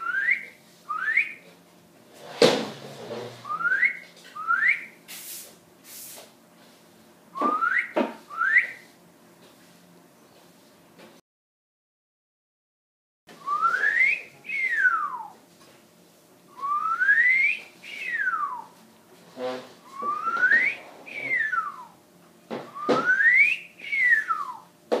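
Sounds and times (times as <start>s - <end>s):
person whistling gliding notes: 13.4s - 15.4s, 16.6s - 18.8s, 19.9s - 22.0s, 22.8s - 24.6s.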